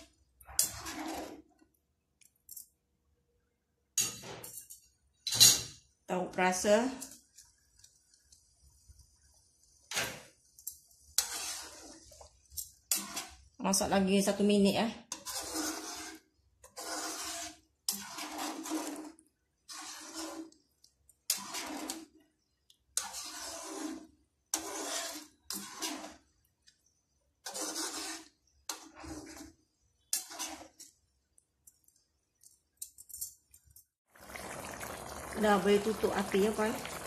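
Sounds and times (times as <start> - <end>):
spatula stirring gravy in wok: 0.0 - 2.4, 6.4 - 32.7.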